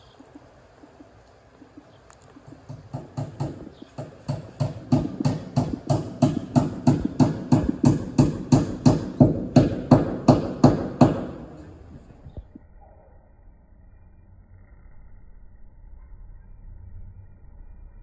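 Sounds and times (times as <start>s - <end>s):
quick footsteps on hard path: 0.3s - 8.8s.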